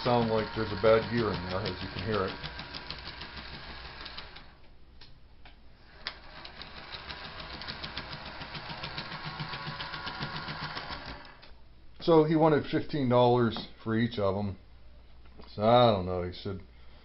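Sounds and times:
model train motor whirring: 0.0s - 4.6s, 5.8s - 11.5s
rapid gear clicking: 0.0s - 4.6s, 6.0s - 11.4s.

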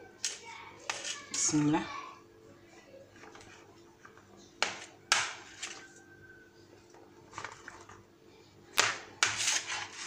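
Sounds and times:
plastic spatula scraping bowl: 9.2s - 10.0s.

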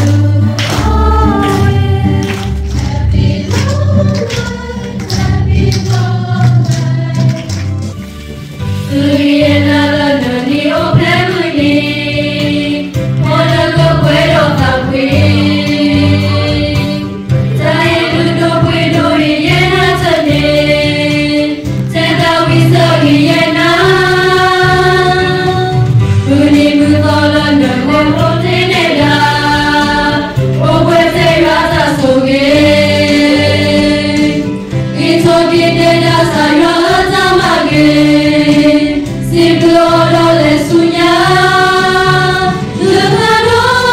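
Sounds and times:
choir singing a hymn: 0.0s - 7.5s, 8.8s - 43.9s
instrumental accompaniment with bass: 0.0s - 43.9s.

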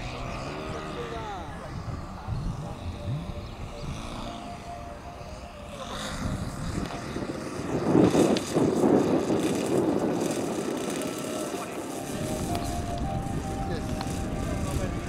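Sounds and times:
model airplane engine and propeller: 0.0s - 15.0s.

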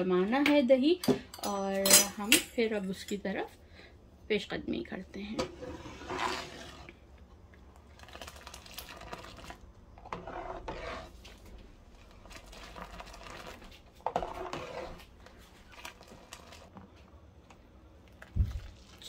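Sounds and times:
ladle splashing milk in a pot: 7.6s - 17.0s, 18.0s - 19.0s.

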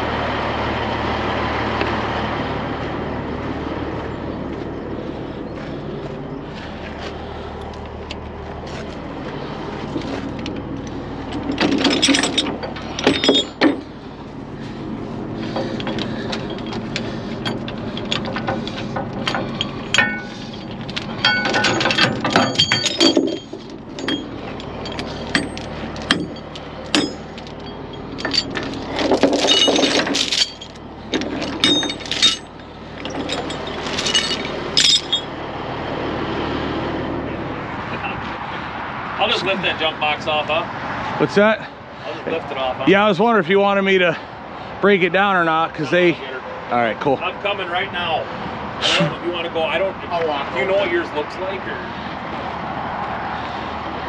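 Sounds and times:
steel chains rattling on metal: 9.9s - 14.0s, 15.4s - 35.4s.

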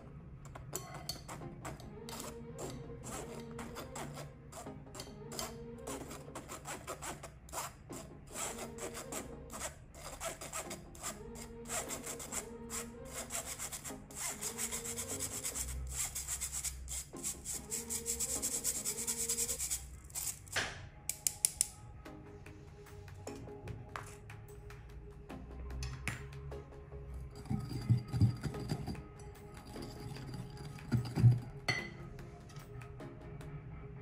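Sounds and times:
spoon scraping flour through sieve: 0.7s - 20.6s, 27.3s - 29.0s, 29.6s - 31.9s.

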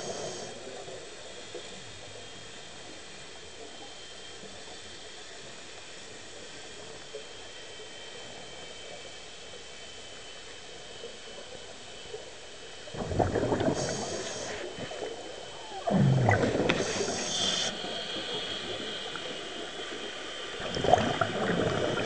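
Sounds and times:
underwater regulator hiss: 0.0s - 0.6s, 13.4s - 19.3s
bubbling bursts underwater: 12.9s - 14.5s, 15.7s - 18.9s, 20.6s - 22.0s.

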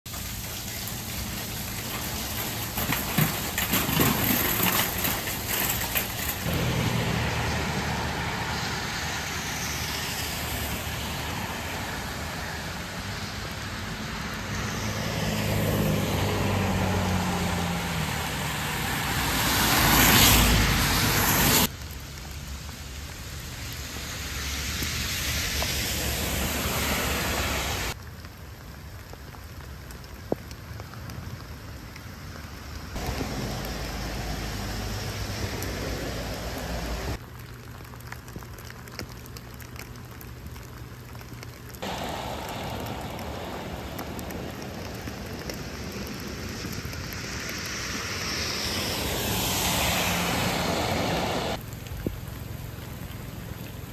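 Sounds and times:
steady rain: 0.1s - 53.9s
tyres hissing on wet road: 0.1s - 53.9s
vehicle passing loudly: 6.4s - 21.7s, 33.0s - 37.2s, 41.8s - 51.6s.

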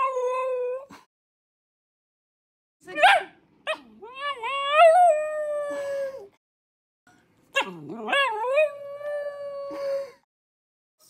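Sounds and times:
puppy howling: 3.0s - 5.7s, 7.6s - 9.6s.

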